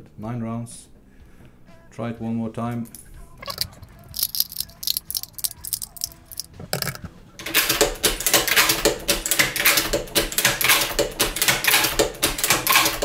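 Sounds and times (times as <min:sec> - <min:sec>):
rifle bolt clicking and rattling: 0:03.4 - 0:07.1.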